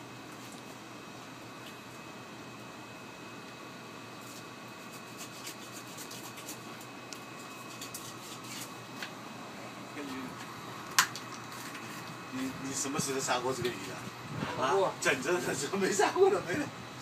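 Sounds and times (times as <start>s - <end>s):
ventilation hum: 0.0s - 17.0s
knife scraping bone and board: 4.2s - 6.6s, 7.5s - 8.7s.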